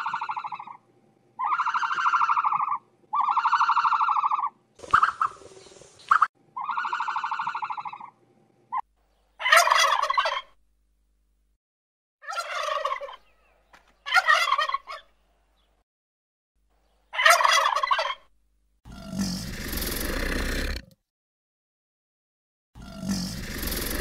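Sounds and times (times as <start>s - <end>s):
turkeys gobbling: 0.0s - 0.8s, 1.4s - 8.8s, 9.4s - 10.6s, 12.2s - 15.1s, 17.2s - 18.3s.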